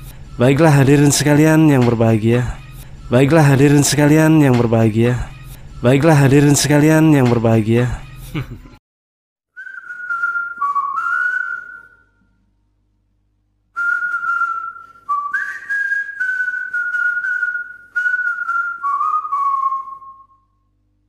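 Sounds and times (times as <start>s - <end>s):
person whistling a tune: 9.5s - 12.1s, 13.8s - 20.5s.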